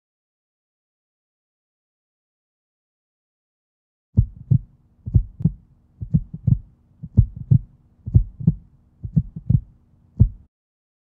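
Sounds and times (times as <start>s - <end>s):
faint steady hum: 4.2s - 10.5s
heartbeat thumps: 4.2s - 10.5s.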